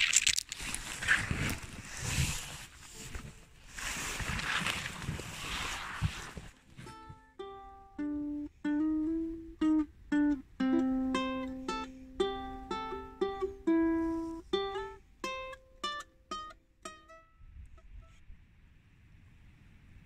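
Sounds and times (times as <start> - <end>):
ukulele playing: 6.8 - 18.1.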